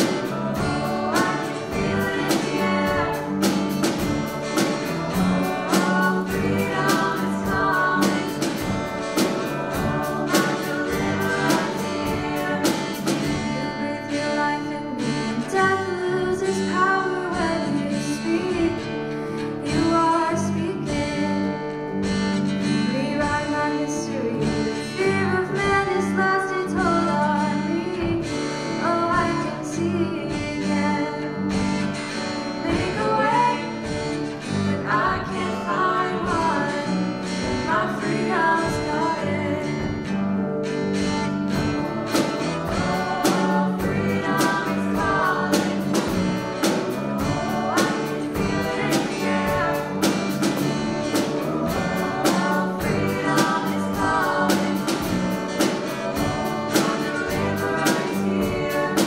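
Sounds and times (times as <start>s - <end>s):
drum kit beat: 0.0s - 13.6s, 40.8s - 59.0s
voices singing: 0.0s - 18.9s, 32.6s - 40.2s, 41.0s - 59.0s
keyboard: 0.0s - 59.0s
strummed guitars: 0.0s - 59.0s.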